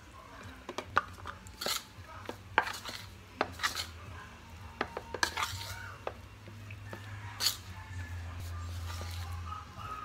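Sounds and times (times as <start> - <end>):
fork scraping a bowl: 1.2 - 4.0, 4.8 - 6.2, 6.9 - 10.0.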